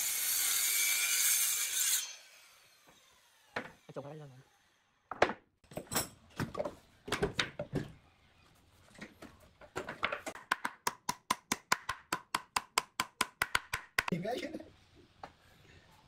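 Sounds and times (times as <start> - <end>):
wooden boards clattering on concrete: 5.1 - 8.0, 8.9 - 10.7.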